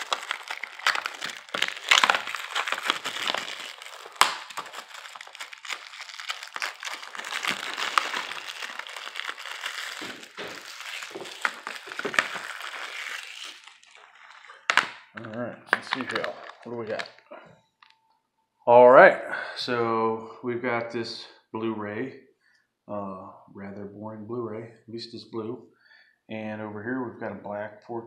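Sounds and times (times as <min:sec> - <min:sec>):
plastic shrink wrap tearing: 0:00.0 - 0:17.9
sharp crackles: 0:00.0 - 0:18.0.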